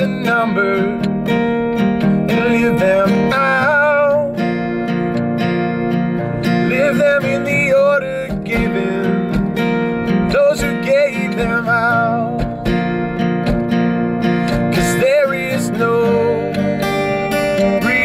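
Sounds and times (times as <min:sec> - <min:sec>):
man singing: 0:00.0 - 0:01.1, 0:02.3 - 0:04.7, 0:06.4 - 0:09.6, 0:10.2 - 0:12.8, 0:14.5 - 0:18.0
acoustic guitar strumming: 0:00.0 - 0:18.0.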